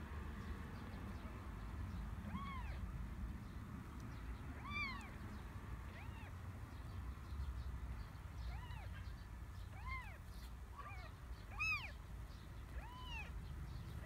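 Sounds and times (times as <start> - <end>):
kittens mewing: 2.2 - 2.9, 4.5 - 5.2, 5.8 - 6.4, 8.4 - 12.0, 12.7 - 14.0.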